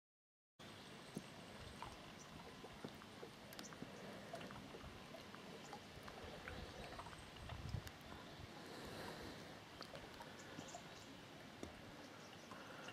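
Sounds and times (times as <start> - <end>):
water lapping: 1.0 - 12.9
small clicks and ticks: 1.8 - 6.2.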